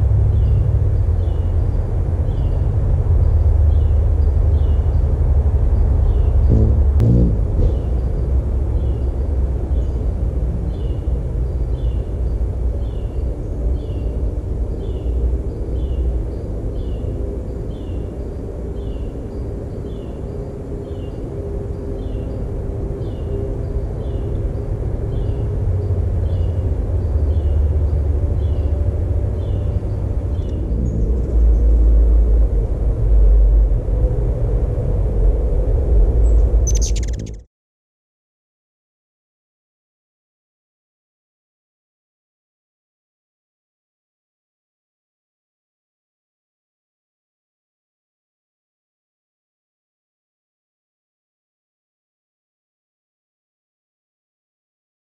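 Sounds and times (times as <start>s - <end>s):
low rumble: 0.0s - 8.8s, 25.4s - 37.5s.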